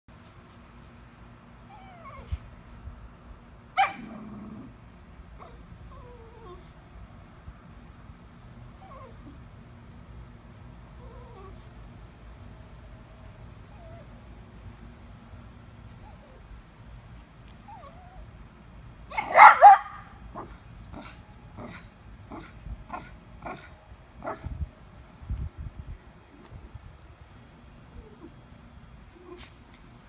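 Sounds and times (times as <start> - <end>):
small dog whimpering: 1.5 - 2.4, 5.4 - 6.8, 8.6 - 9.4, 11.0 - 11.7, 13.5 - 14.1, 17.3 - 18.3
dog yipping: 19.1 - 20.5.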